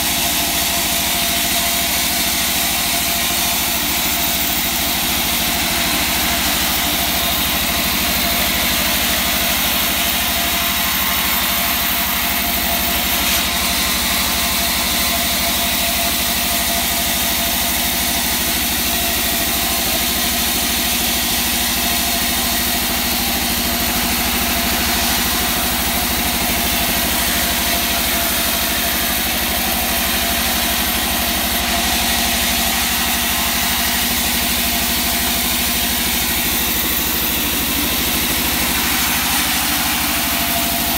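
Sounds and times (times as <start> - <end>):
band saw cutting wood: 0.0 - 40.9.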